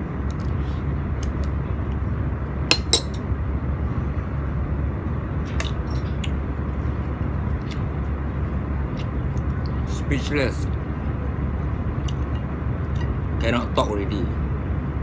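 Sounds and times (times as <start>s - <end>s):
low background hum: 0.0s - 15.0s.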